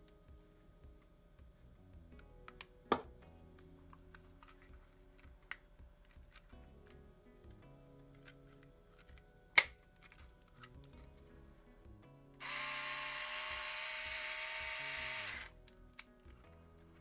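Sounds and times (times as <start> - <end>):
cordless screwdriver motor running: 12.4 - 15.5.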